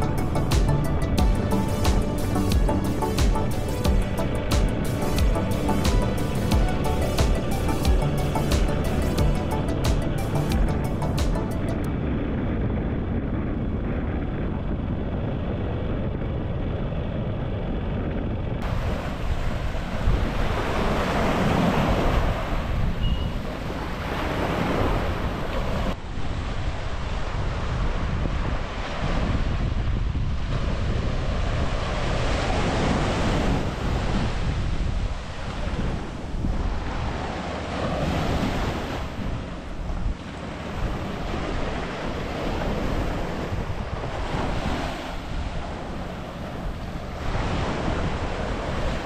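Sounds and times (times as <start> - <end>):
wind buffeting microphone: 11.8 - 49.0
surf breaking on a beach: 18.6 - 49.0.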